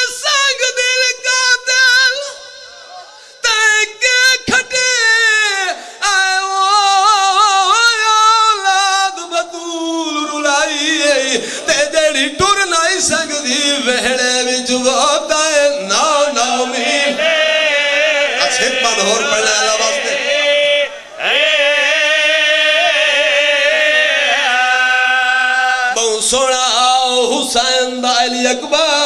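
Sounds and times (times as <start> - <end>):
man chanting a lament: 0.0 - 29.0.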